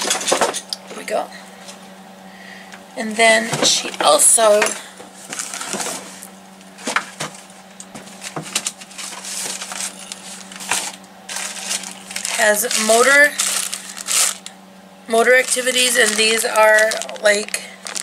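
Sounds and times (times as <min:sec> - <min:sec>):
plastic packaging crinkling: 0:05.3 - 0:06.0, 0:08.0 - 0:18.0.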